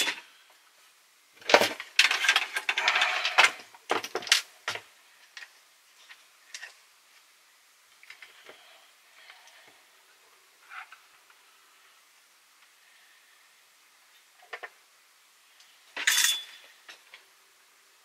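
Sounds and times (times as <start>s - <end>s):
rattling and scraping: 1.4s - 4.8s.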